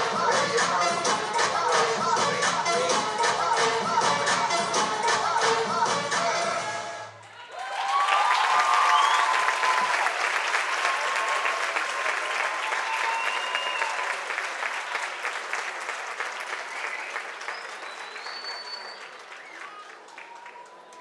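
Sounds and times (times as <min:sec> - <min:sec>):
whoops and shouts: 0:07.4 - 0:10.2, 0:12.5 - 0:14.2
audience applauding: 0:07.5 - 0:21.0.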